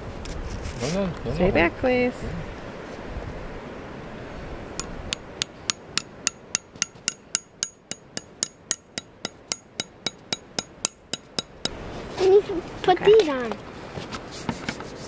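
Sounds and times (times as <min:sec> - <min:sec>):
hammer tapping plastic spile: 0:04.8 - 0:11.8.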